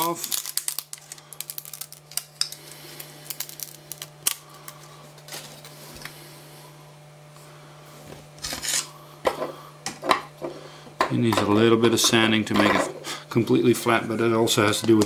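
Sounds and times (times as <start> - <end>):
tape peeling: 0.0 - 4.6.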